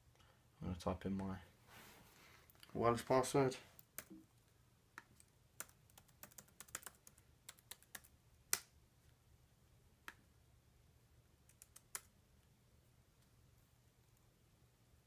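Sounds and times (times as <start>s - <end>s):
laptop keyboard clicks: 5.6s - 8.6s, 11.5s - 12.1s.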